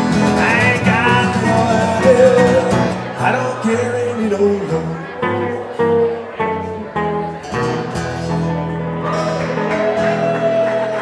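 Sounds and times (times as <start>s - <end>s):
acoustic guitars strumming: 0.0s - 11.0s.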